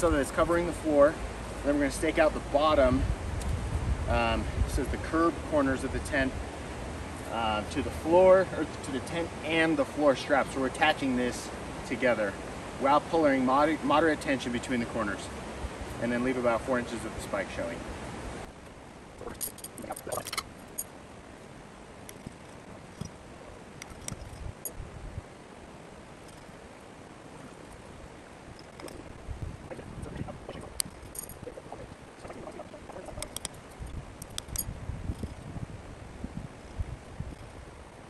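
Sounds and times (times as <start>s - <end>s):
gear clicking and clinking: 19.2s - 20.9s, 22.1s - 23.2s, 23.8s - 24.8s, 28.5s - 29.2s, 30.6s - 31.7s, 32.4s - 35.5s.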